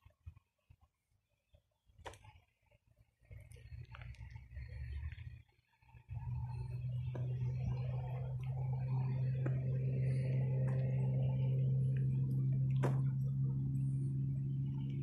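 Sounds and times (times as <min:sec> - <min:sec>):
steady low hum: 0:03.3 - 0:15.0.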